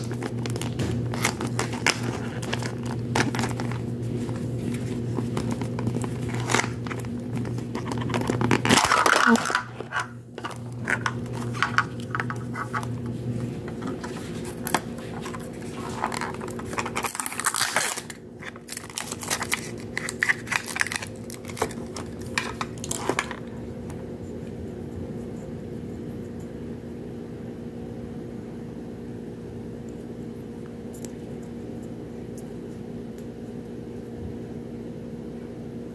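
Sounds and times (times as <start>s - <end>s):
plastic wrapper crinkling: 0.0s - 13.0s, 13.8s - 23.5s
steady low hum: 0.0s - 35.9s.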